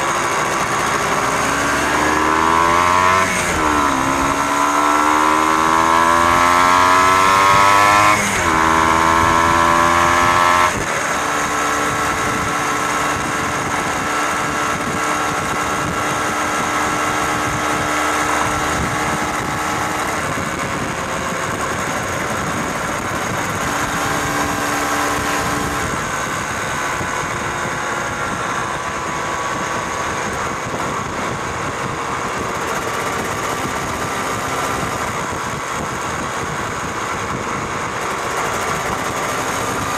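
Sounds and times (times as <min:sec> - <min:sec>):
motorcycle engine: 0:00.0 - 0:39.9
wind and road noise: 0:00.0 - 0:39.9.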